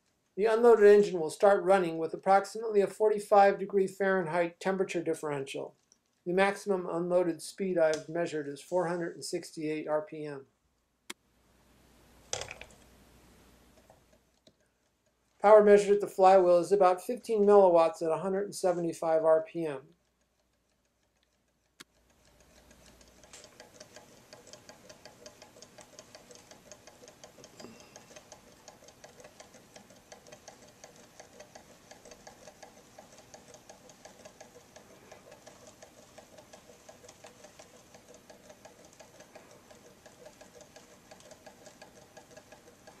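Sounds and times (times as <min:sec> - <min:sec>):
stirling engine fast ticking: 0:22.4 - 0:43.0.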